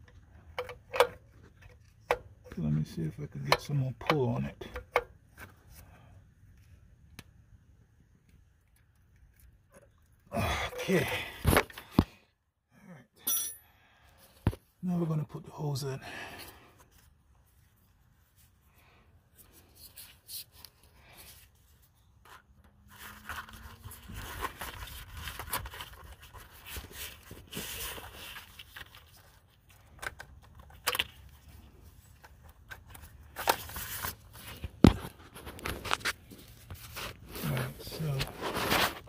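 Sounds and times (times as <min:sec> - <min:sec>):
scraping and rustling: 0:31.4 - 0:39.0.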